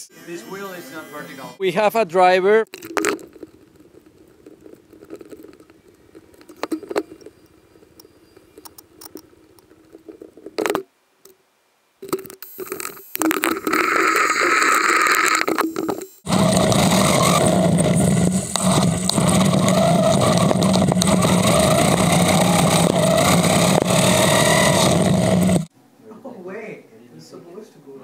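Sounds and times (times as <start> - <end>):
toy car wheels rolling on concrete: 2.7 - 10.8, 12.3 - 25.7.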